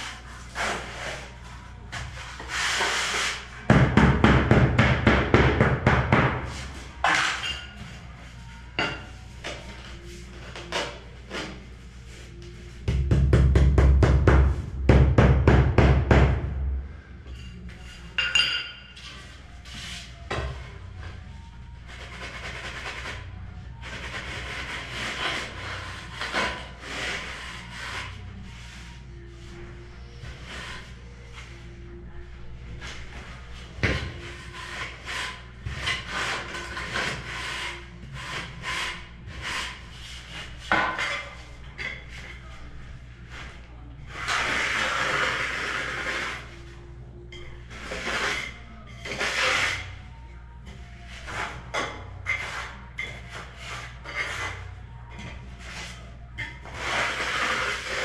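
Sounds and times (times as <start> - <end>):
straightedge scraping mortar: 44.1 - 46.5, 47.7 - 50.0, 51.2 - 58.0.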